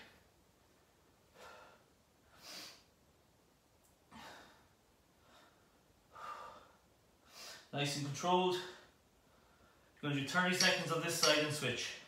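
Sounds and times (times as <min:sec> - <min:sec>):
man breathing: 0:01.3 - 0:02.9, 0:04.1 - 0:07.7, 0:08.6 - 0:10.0.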